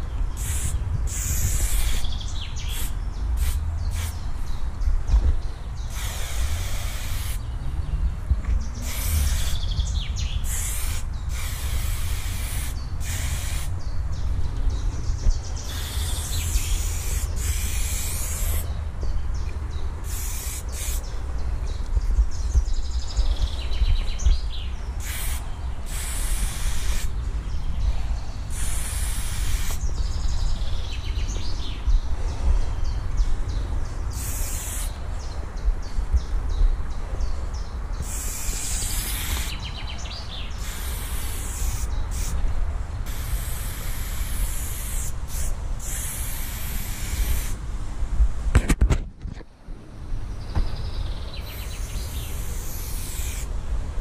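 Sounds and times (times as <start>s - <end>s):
spray paint can hissing: 0.4s - 4.2s, 5.9s - 7.4s, 8.8s - 13.8s, 15.7s - 18.7s, 20.0s - 21.1s, 25.0s - 27.1s, 28.5s - 29.9s, 34.1s - 35.0s, 38.0s - 39.6s, 40.5s - 42.4s, 43.0s - 47.6s, 51.4s - 53.5s.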